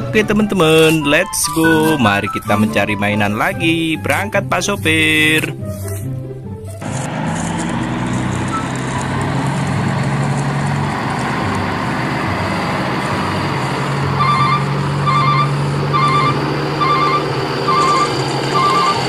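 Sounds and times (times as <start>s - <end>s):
truck engine running: 4.9s - 19.0s
reversing alarm beeping: 14.2s - 19.0s.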